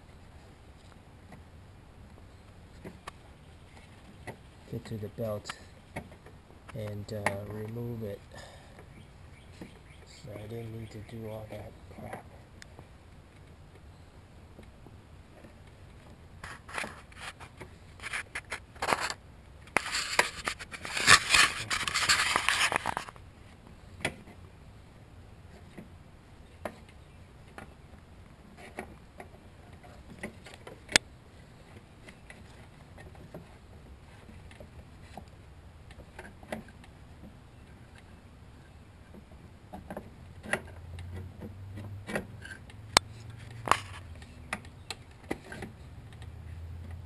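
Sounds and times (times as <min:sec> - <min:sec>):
light clicks and knocks: 0:02.8 - 0:07.8
belt scraping against pulley: 0:16.4 - 0:19.2, 0:19.8 - 0:23.1.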